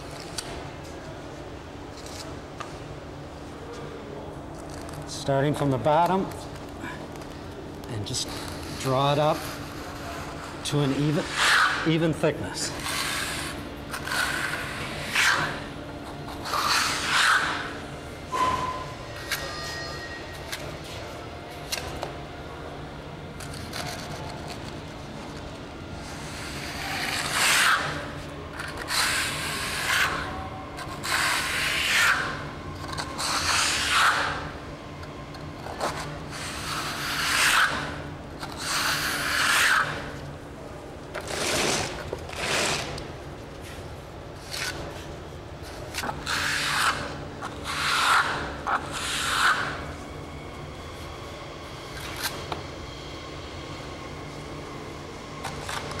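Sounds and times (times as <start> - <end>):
trowel scraping wet plaster: 26.2 - 34.4, 41.2 - 43.0, 46.0 - 49.8.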